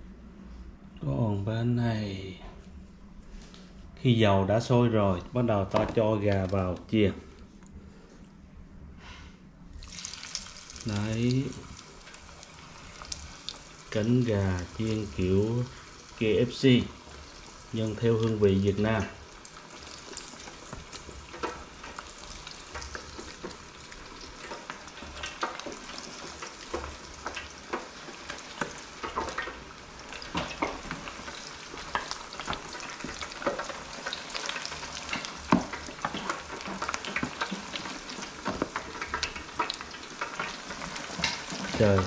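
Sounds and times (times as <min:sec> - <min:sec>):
chicken frying in hot oil: 0:09.8 - 0:42.0.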